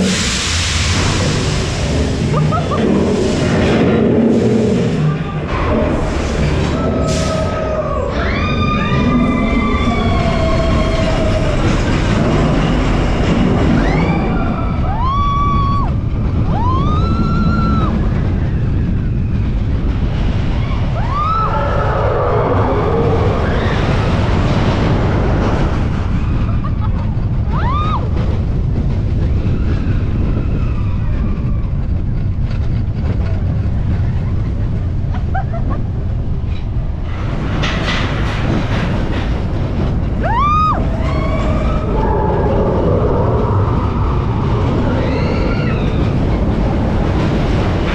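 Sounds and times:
roller coaster wheels rumbling: 0.0s - 47.9s
riders screaming: 6.7s - 12.2s, 20.6s - 24.2s, 40.2s - 46.7s
wind on microphone: 8.6s - 47.9s.

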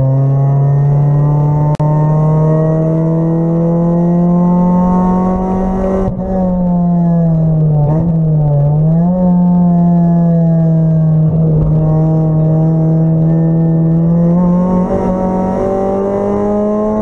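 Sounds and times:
race car engine pulling hard: 10.2s - 17.0s.

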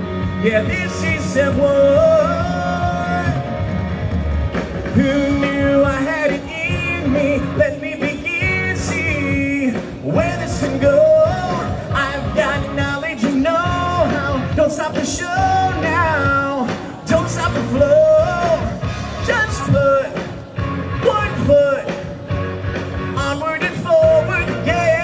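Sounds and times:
steady bass: 0.0s - 25.0s
man singing into microphone: 0.3s - 3.6s, 4.9s - 22.2s, 23.2s - 25.0s.

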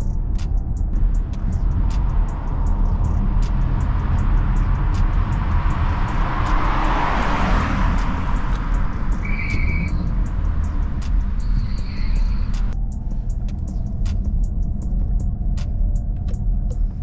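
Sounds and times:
car engine rumbling: 0.0s - 17.0s
road noise: 0.0s - 17.0s.

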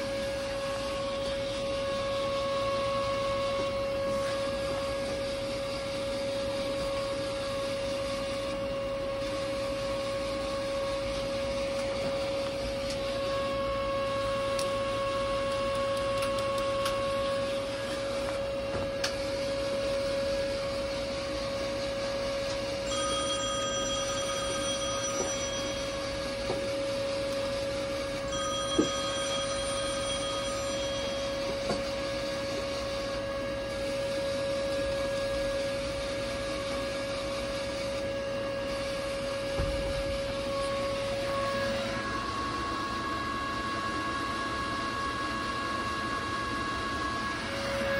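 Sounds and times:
electrical whine: 0.0s - 47.9s
ringing tone: 22.8s - 26.9s, 28.0s - 32.6s.

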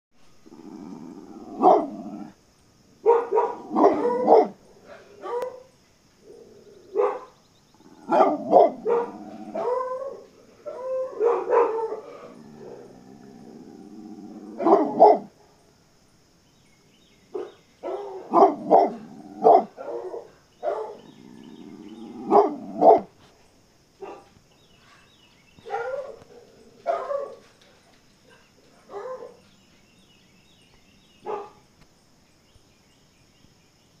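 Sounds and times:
dog barking: 1.5s - 2.3s, 3.0s - 5.7s, 6.9s - 12.3s, 14.5s - 15.6s, 17.4s - 21.1s, 22.2s - 23.1s, 24.0s - 24.3s, 24.9s - 29.5s, 31.2s - 31.6s.

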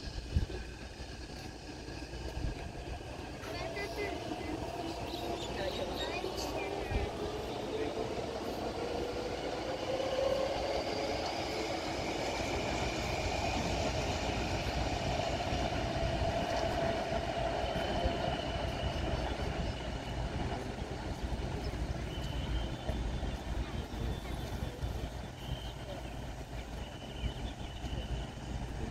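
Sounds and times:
electric train running on track: 0.0s - 28.9s
train wheels rumbling on rails: 0.0s - 28.9s.

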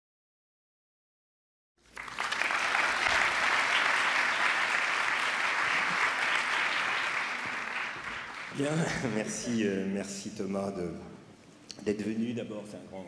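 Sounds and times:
audience applauding: 1.8s - 9.4s.

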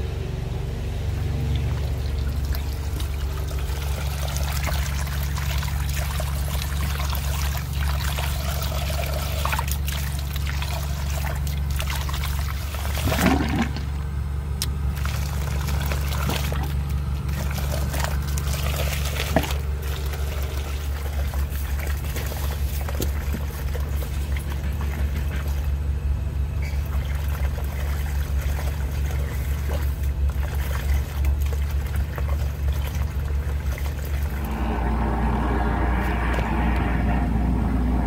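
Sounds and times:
water gurgling down drain: 1.4s - 14.1s, 14.9s - 25.9s, 26.6s - 38.0s
jetter machine humming: 10.1s - 38.0s.

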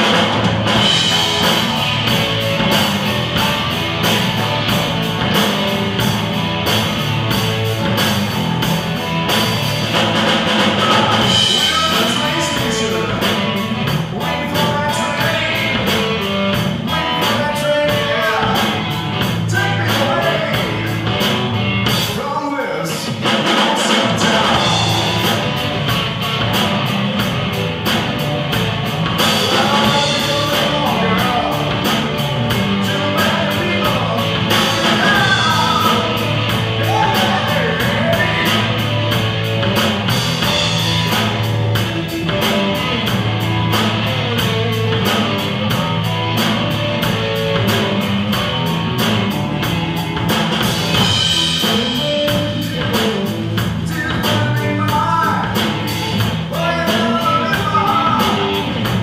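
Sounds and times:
live rock band playing: 0.0s - 59.0s
person singing: 10.6s - 21.4s, 22.0s - 25.6s, 29.2s - 38.9s, 51.5s - 59.0s.

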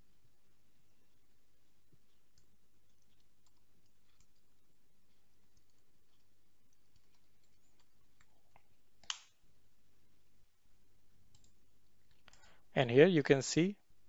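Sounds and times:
keyboard typing: 1.8s - 9.2s.

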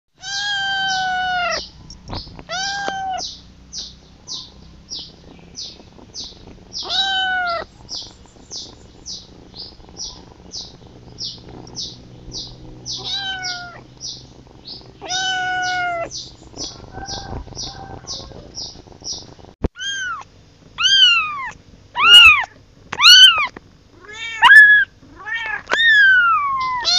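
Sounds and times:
kitten meowing: 0.2s - 1.7s, 2.4s - 3.4s, 6.7s - 8.7s, 12.9s - 13.9s, 15.0s - 16.2s, 19.7s - 26.9s.

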